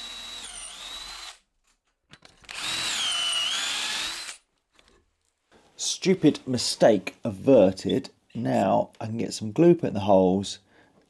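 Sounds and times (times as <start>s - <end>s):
cordless drill boring into wood: 0.0s - 1.4s, 2.5s - 4.4s.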